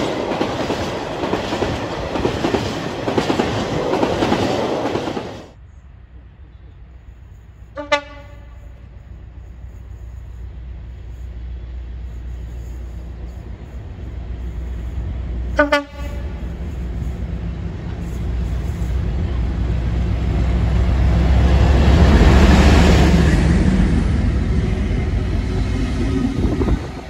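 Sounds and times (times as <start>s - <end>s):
diesel locomotive engine rumble: 0.0s - 27.0s
locomotive horn blast: 7.7s - 8.8s, 15.5s - 16.6s.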